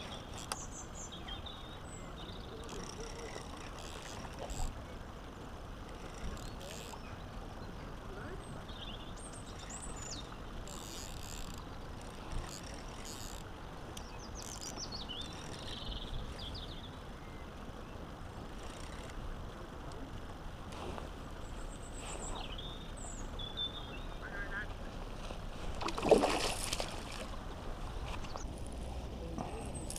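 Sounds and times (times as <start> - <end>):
small birds chirping: 0.0 - 4.7, 6.0 - 19.0, 21.4 - 24.6
outdoor background rush: 0.0 - 29.9.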